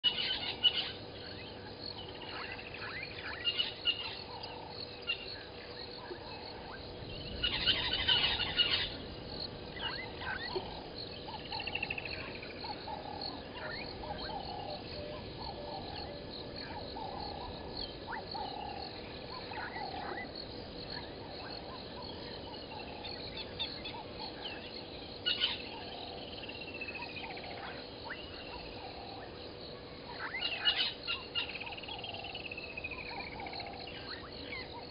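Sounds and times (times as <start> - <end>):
birds calling: 0.0 - 34.9
frogs calling: 0.0 - 34.9.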